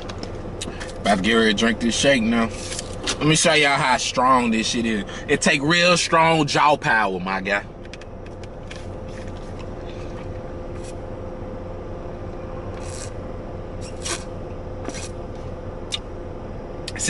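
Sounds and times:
steady low hum: 0.0s - 17.0s
sucking through a plastic straw: 12.8s - 13.1s, 13.8s - 14.3s.

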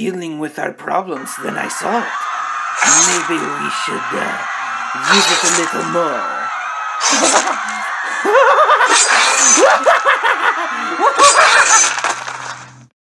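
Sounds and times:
man cackling laughter: 7.2s - 12.1s.

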